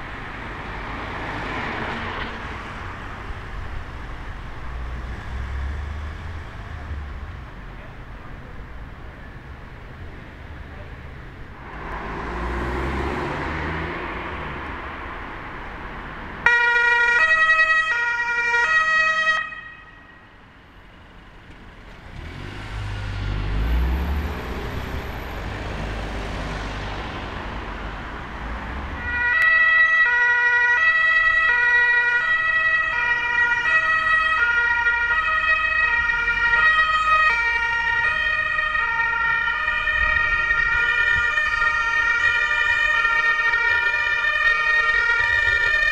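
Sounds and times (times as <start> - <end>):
vehicle passing: 0.0 - 7.5, 11.5 - 16.5, 21.7 - 45.9
two-tone emergency sirens: 16.4 - 20.4, 28.8 - 45.9.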